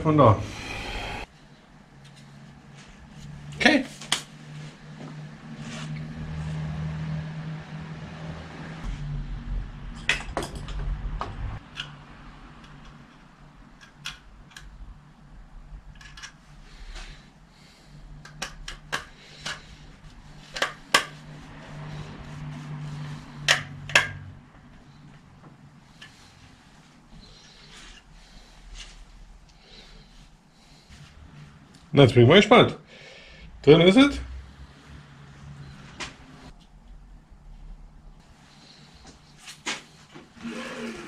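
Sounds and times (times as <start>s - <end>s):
low hum: 0.2s - 1.7s.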